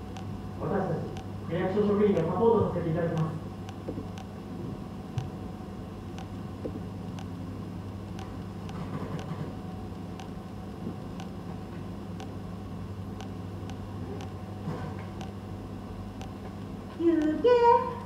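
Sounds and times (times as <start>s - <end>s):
low room hum: 0.0s - 18.0s
wall clock ticking: 2.2s - 2.4s, 3.1s - 4.3s.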